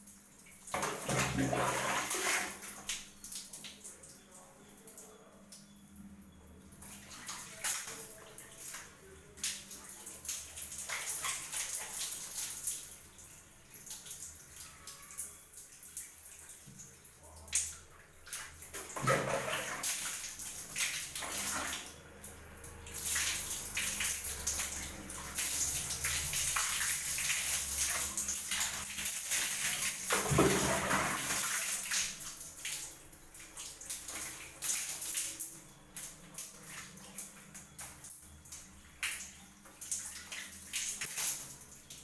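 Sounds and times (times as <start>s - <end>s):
water splashing on floor: 0.7s - 4.2s, 6.8s - 42.0s
water pouring over hair: 22.7s - 32.9s.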